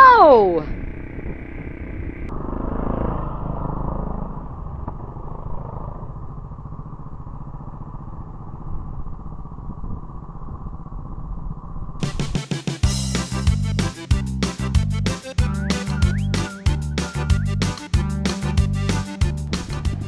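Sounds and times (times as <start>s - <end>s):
motorcycle engine running: 0.7s - 20.0s
music: 12.0s - 20.0s.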